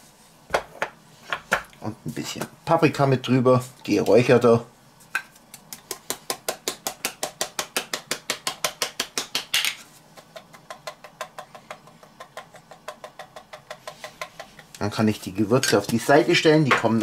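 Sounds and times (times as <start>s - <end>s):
spice shaker tapping: 5.1s - 14.7s.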